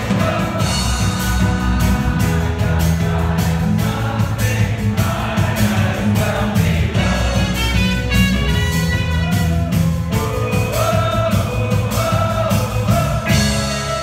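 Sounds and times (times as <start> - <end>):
drum kit beat: 0.0 - 14.0
guitars: 0.0 - 14.0
live folk rock band: 0.0 - 14.0
brass section: 6.2 - 14.0.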